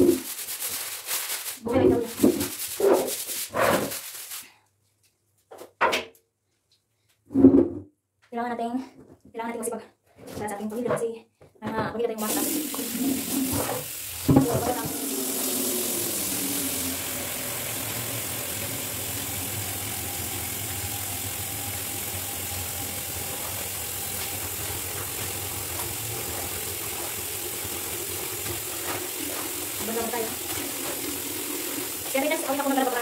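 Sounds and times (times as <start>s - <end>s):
woman speaking: 1.6s - 2.4s, 8.4s - 13.4s, 14.3s - 15.2s, 29.8s - 30.6s, 32.1s - 33.0s
tap water running into basin: 12.2s - 33.0s.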